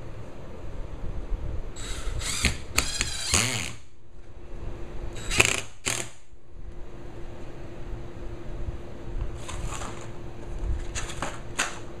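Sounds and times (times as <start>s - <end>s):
power drill driving screws: 1.8s - 3.8s, 5.2s - 6.2s.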